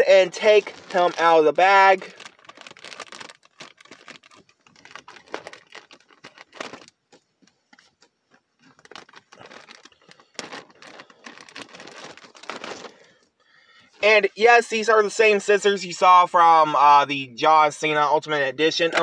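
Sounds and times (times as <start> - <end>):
plastic bag crinkling: 0.0 - 13.2.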